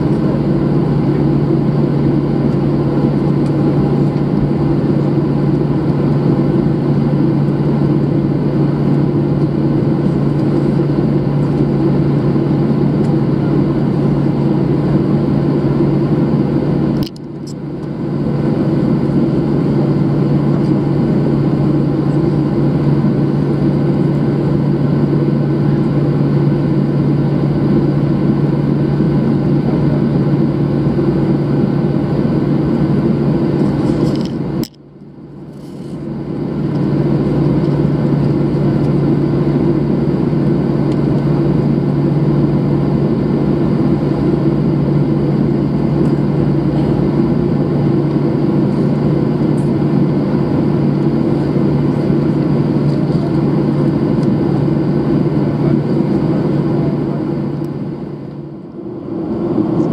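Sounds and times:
jet engines droning: 0.0 - 59.9.

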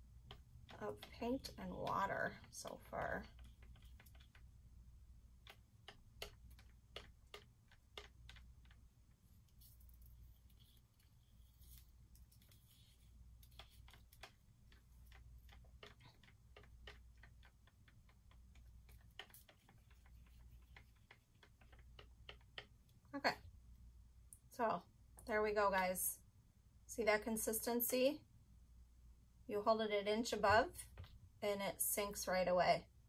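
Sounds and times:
low steady hum: 0.0 - 33.0
stir stick clicking in cup: 0.2 - 4.6, 5.4 - 10.1, 13.4 - 23.0.

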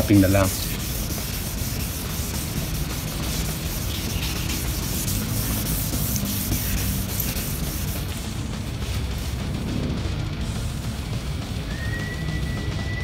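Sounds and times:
sandpaper rubbing on plastic: 0.0 - 9.6
background music: 0.0 - 13.0.

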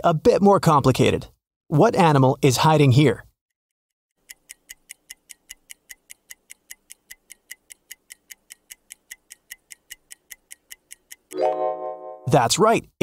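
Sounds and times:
stopwatch ticking: 4.1 - 11.4.

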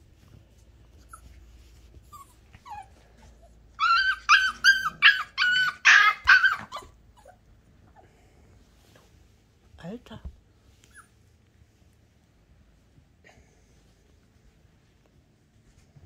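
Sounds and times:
faint puppy squeaks: 0.9 - 7.4, 10.8 - 11.3
puppies yipping: 3.8 - 7.4.

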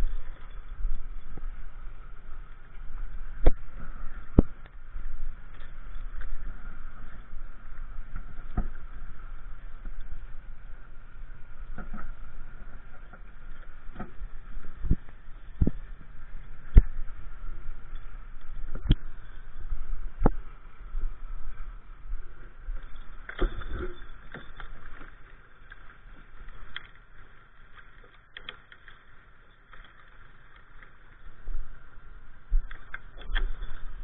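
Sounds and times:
faint steady hum: 0.0 - 34.0
microphone handling noise: 13.9 - 17.2, 18.6 - 21.6.

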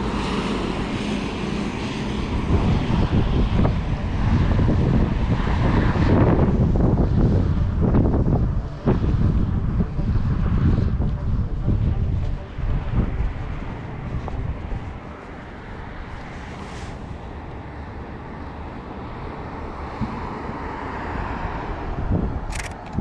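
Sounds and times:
passing car tyre noise: 0.0 - 23.0
wind buffeting microphone: 0.0 - 23.0
camera shutter double click: 22.5 - 23.0.

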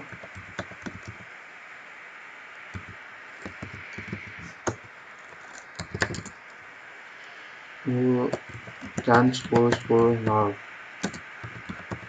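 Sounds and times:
steady background hiss: 0.0 - 12.0
keyboard keystrokes: 2.8 - 4.8, 5.5 - 6.3, 8.3 - 10.4, 11.0 - 12.0.

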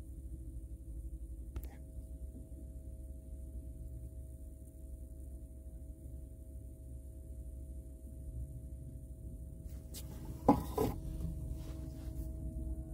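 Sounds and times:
faint hum: 0.0 - 12.9
car cabin rumble: 9.7 - 12.4.

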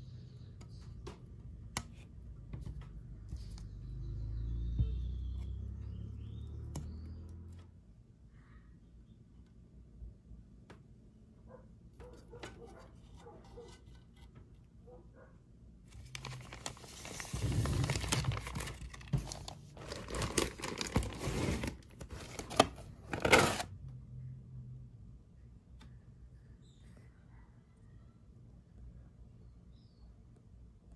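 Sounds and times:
plastic bag crinkling: 15.9 - 23.6.

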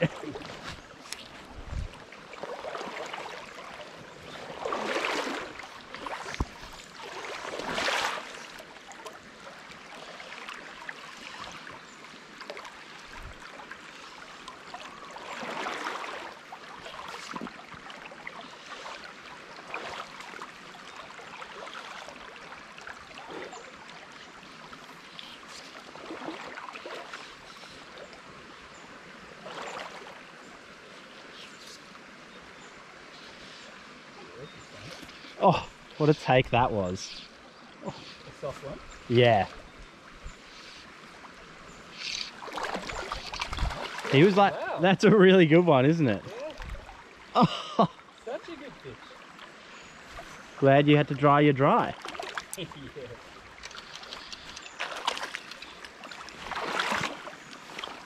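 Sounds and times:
water whooshes: 0.0 - 8.9, 41.9 - 45.2, 53.8 - 58.0
creek trickling over rocks: 0.0 - 58.0.

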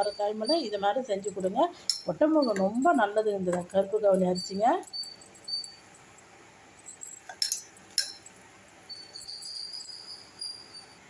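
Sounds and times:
faint high steady tone: 0.0 - 11.0
dough clinking against steel bowl: 7.1 - 8.4.

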